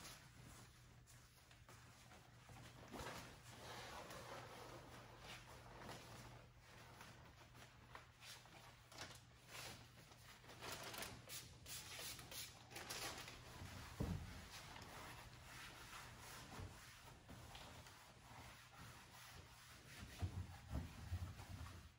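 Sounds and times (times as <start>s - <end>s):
paper towels rubbing on glass: 13.3s - 21.9s.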